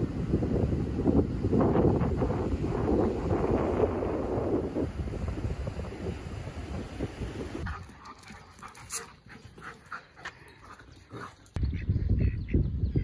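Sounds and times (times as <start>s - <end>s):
wind on microphone: 0.0s - 8.0s, 11.6s - 13.0s.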